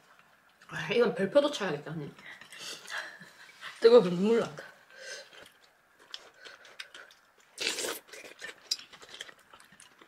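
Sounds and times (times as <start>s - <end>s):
person chewing food: 5.2s - 10.0s.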